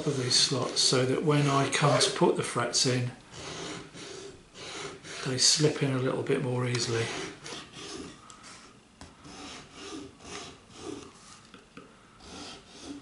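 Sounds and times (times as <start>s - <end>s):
file rasping in fret slots: 0.0s - 2.2s, 3.3s - 5.8s, 6.7s - 8.6s, 9.2s - 11.3s, 12.2s - 13.0s.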